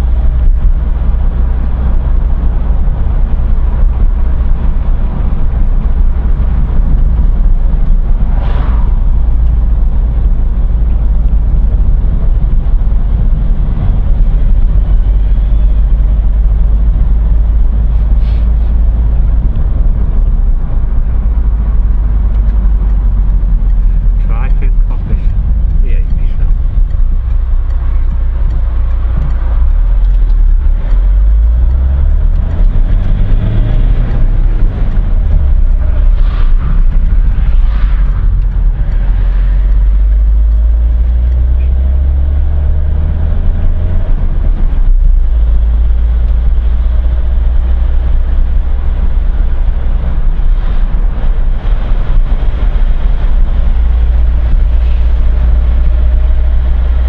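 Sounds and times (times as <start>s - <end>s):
car engine and road rumble: 0.0s - 57.0s.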